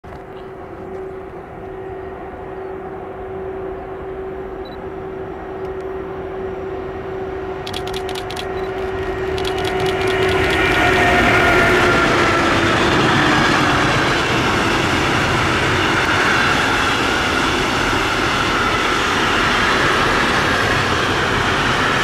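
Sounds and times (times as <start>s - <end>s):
freight train hum and rumble: 0.0s - 22.0s
train wheel clicks: 7.6s - 11.1s.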